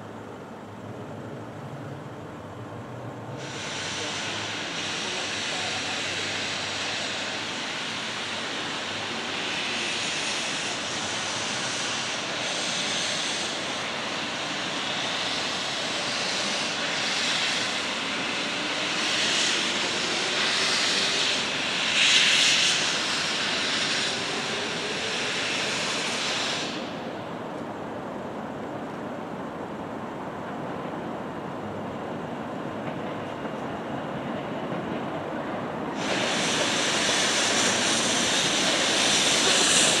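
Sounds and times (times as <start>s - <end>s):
steam locomotive hissing: 3.3s - 40.0s.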